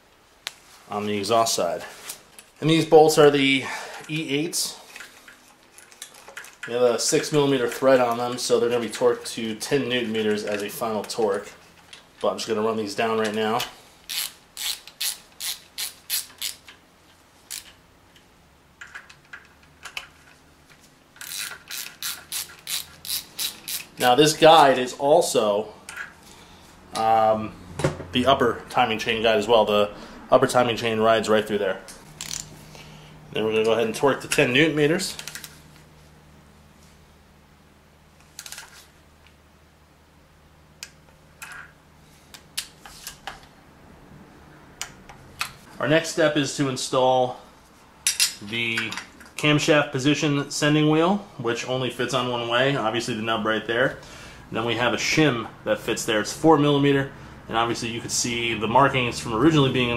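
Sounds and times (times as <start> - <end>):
hand ratchet clicking: 14.1 - 16.8, 21.2 - 24.1, 32.2 - 32.5.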